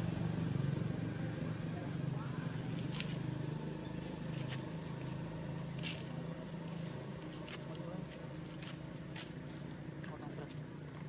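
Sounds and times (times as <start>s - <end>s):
distant voices murmuring: 0.0s - 11.0s.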